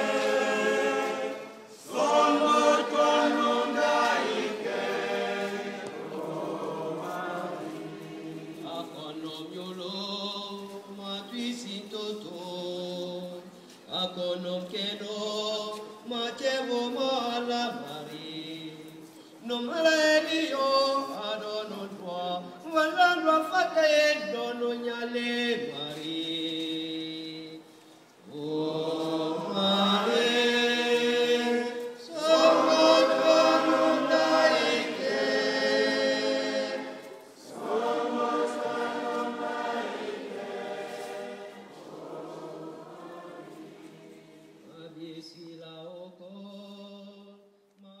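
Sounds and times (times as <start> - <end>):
choir singing sustained chords: 0.0 - 8.7, 28.5 - 44.7.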